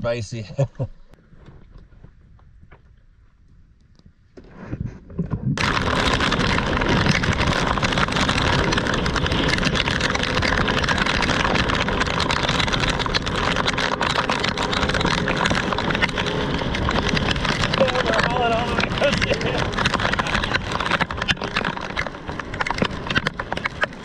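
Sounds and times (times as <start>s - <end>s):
rush of wind: 4.5s - 24.0s
boat engine noise: 5.6s - 24.0s
rain: 5.6s - 24.0s.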